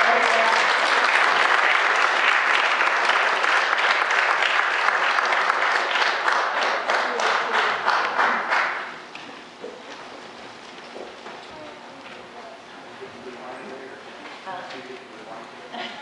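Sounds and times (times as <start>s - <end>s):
crowd applauding: 0.0s - 9.1s.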